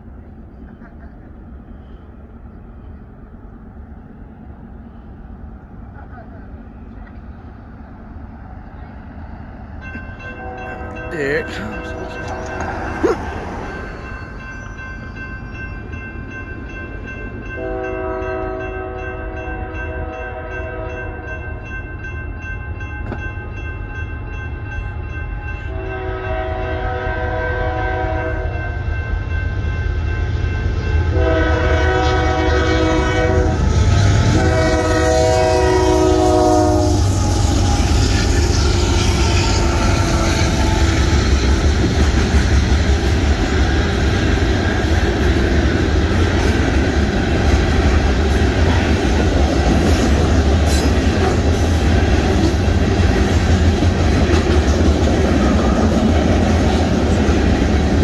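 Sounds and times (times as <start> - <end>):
train rumbling and clattering: 0.0 - 58.0
crossing bell ringing: 9.8 - 33.4
locomotive horn blasts: 10.2 - 12.7, 17.6 - 21.2, 25.7 - 28.6, 31.1 - 41.0.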